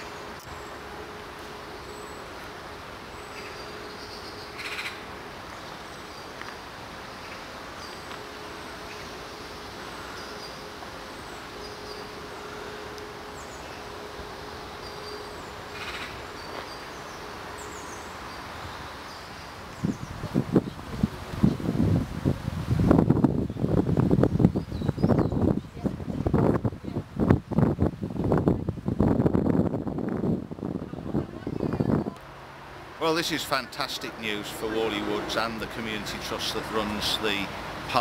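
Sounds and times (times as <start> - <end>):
steady background hiss: 0.0 - 38.0
small birds chirping: 3.0 - 14.0, 14.7 - 21.6, 23.4 - 26.0
wind buffeting microphone: 16.2 - 32.2.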